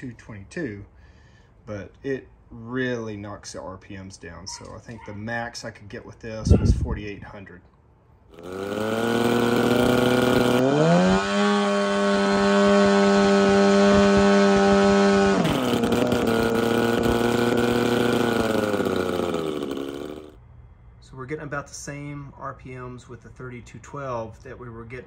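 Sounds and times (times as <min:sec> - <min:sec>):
paramotor engine revving: 0:08.3 - 0:20.4.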